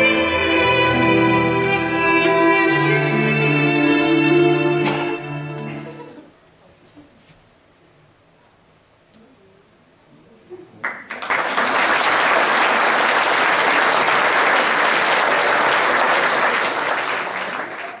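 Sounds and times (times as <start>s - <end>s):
audience applauding: 10.8s - 18.0s.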